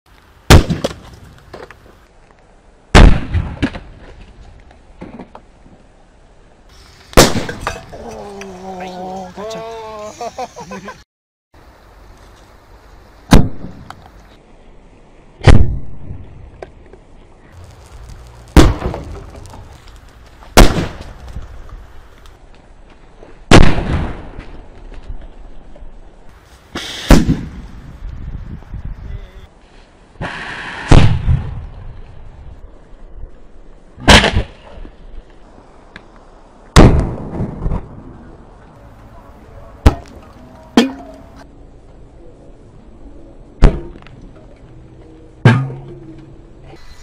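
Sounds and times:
loud explosion blasts: 2.9 - 3.8, 17.6 - 19.8, 20.6 - 21.1, 23.5 - 24.4, 27.0 - 27.8, 30.2 - 31.7, 36.8 - 38.1
smaller cracks: 17.6 - 25.2.

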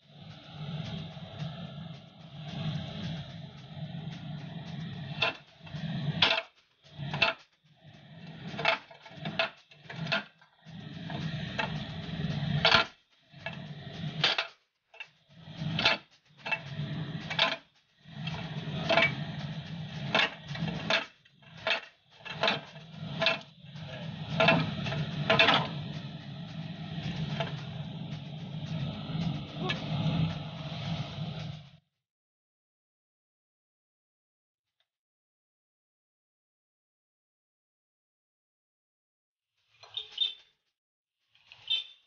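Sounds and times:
low steady hum: 18.1 - 31.7.

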